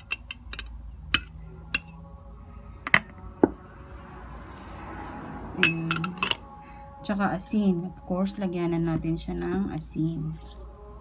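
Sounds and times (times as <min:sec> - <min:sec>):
glass bowl clinking against dish: 0:05.6 - 0:06.4.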